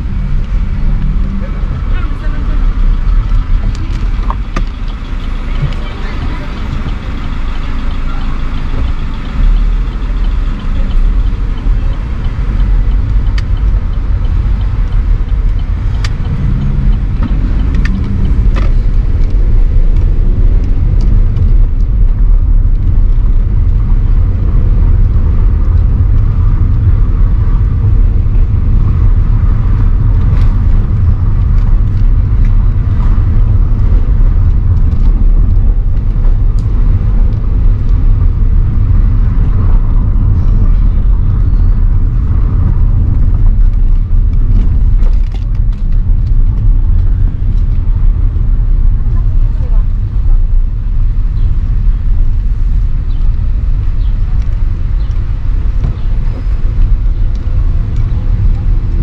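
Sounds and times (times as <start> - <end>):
traffic rumble: 0.0 - 59.0.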